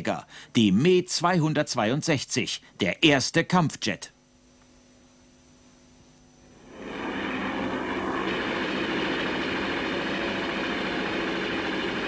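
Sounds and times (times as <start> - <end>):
aircraft engine noise: 6.6 - 12.0.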